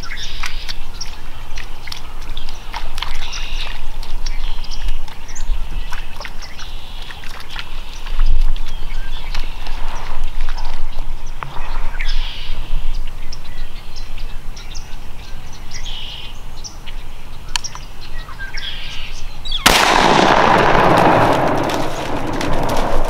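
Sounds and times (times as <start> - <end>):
rifle shot boom: 19.6 - 23.0.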